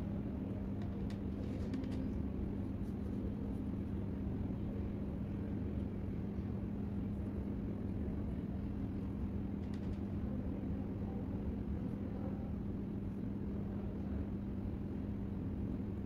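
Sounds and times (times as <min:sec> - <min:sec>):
constant low hum: 0:00.0 - 0:16.0
low background rumble: 0:00.0 - 0:16.0
faint clicks: 0:09.6 - 0:10.1.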